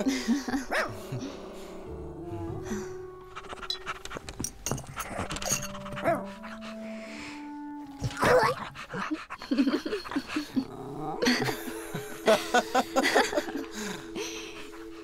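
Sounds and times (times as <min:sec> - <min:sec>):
man and woman laughing: 0:00.0 - 0:01.4, 0:08.9 - 0:14.3
soft background music: 0:00.0 - 0:15.0.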